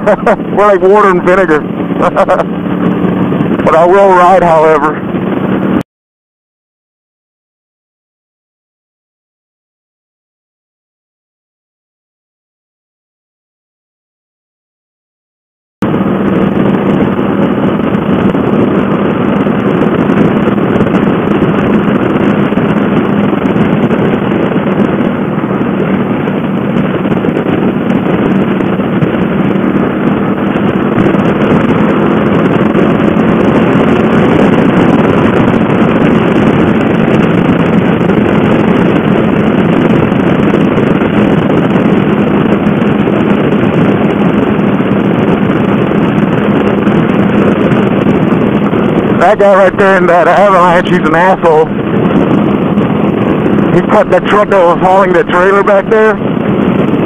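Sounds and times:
motorcycle engine cruising: 0.0s - 5.8s, 15.8s - 57.0s
wind rushing over microphone: 0.0s - 5.8s, 15.8s - 57.0s.

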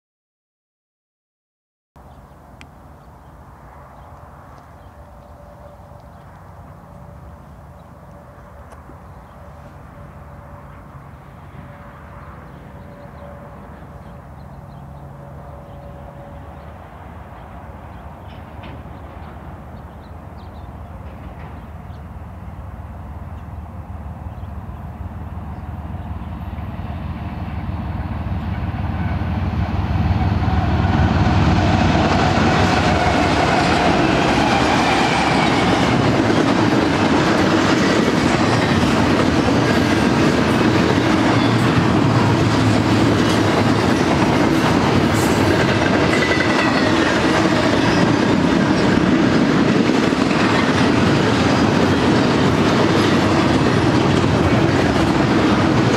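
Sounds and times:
diesel locomotives: 2.0s - 55.9s
train wheels clattering on rails: 17.3s - 22.1s, 30.2s - 55.9s.

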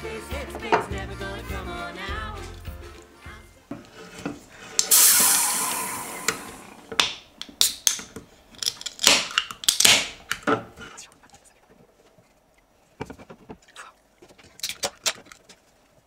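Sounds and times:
can opening fizzing hiss: 4.8s - 6.8s
can tab clicks: 4.8s - 10.5s.

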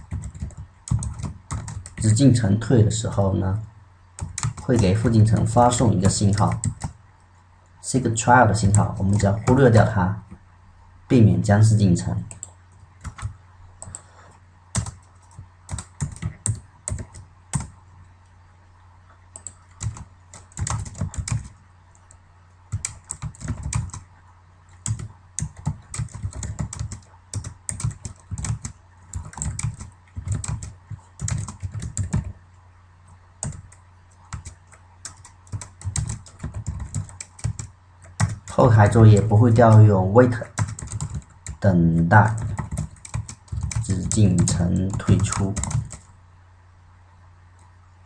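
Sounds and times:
typing on a keyboard: 0.0s - 2.2s, 4.2s - 7.0s, 12.3s - 14.0s, 14.7s - 17.8s, 19.3s - 24.0s, 24.7s - 32.3s, 33.4s - 38.6s, 39.2s - 46.1s
steady low hum: 0.0s - 48.0s.

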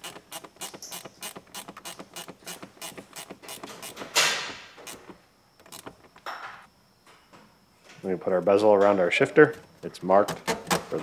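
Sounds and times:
ratcheting wrench clicking: 0.0s - 6.0s.

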